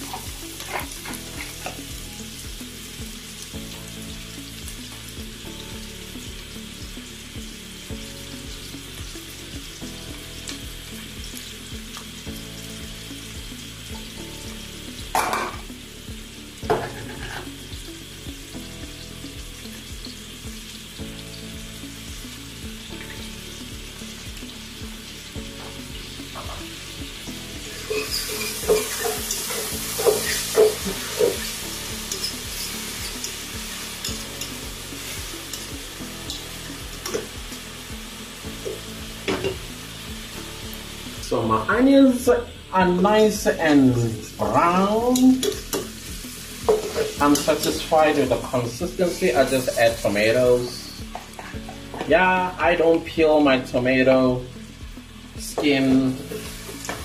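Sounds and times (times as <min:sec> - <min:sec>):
onions sizzling in oil: 0:00.0 - 0:57.0
utensil stirring in pot: 0:27.6 - 0:36.4, 0:45.0 - 0:47.8.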